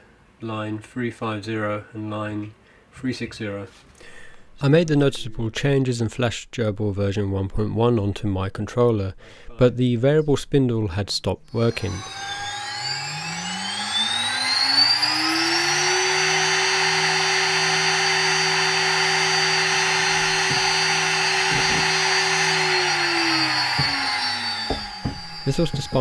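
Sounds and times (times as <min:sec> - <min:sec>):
router spindle whine: 0:11.5 - 0:26.0.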